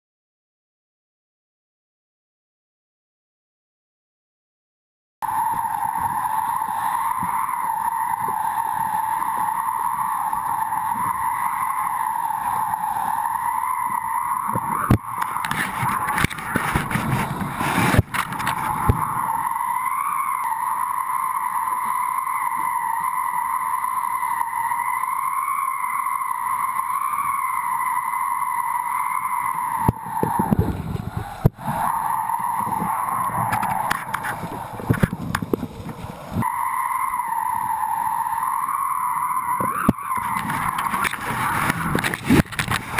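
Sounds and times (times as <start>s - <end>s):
kite lines whistling hum: 5.2s - 42.9s
rushing wind noise: 5.2s - 42.9s
board carving through spray: 10.8s - 19.9s.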